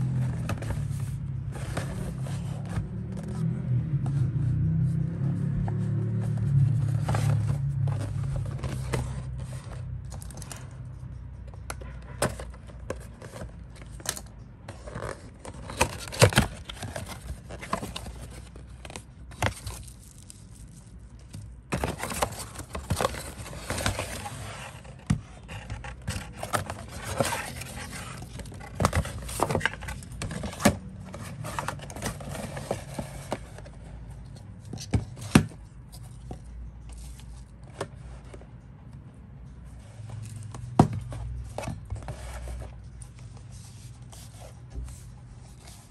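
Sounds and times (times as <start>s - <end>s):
cardboard scraping and sliding: 0.0s - 10.6s, 14.7s - 20.3s, 21.6s - 34.0s, 39.7s - 45.9s.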